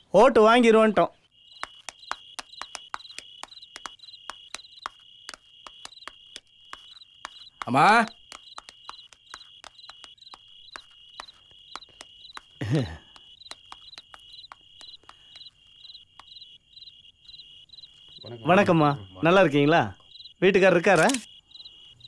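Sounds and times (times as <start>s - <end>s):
crickets trilling: 0.2s - 22.0s
sharp clicks: 20.9s - 21.3s.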